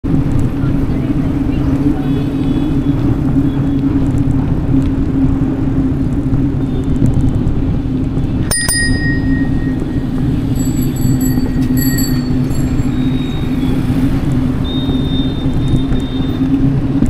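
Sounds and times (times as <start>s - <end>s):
rumble of moving bicycle: 0.0s - 17.0s
bicycle bell ringing: 8.5s - 14.1s.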